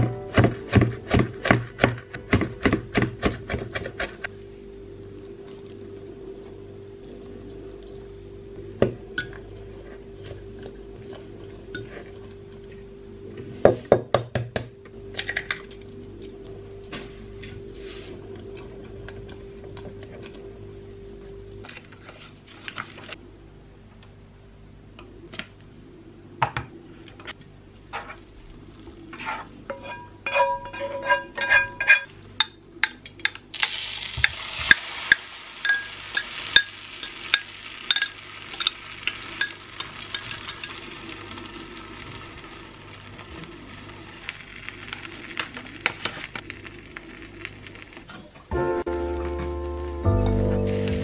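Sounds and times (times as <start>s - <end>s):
frying pan sizzling and popping: 27.9s - 51.0s
kitchen utensils clinking: 29.2s - 40.9s.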